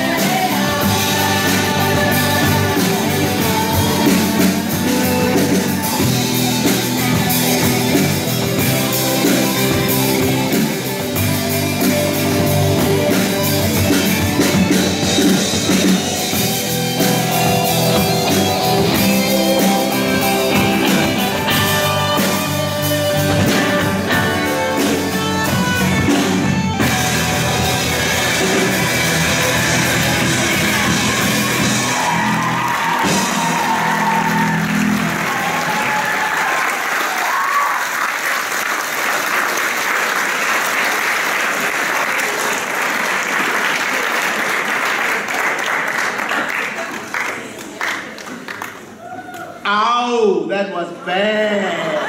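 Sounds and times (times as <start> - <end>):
electric guitar: 0.0 - 36.2
bass guitar: 0.0 - 36.4
drum kit: 0.0 - 36.4.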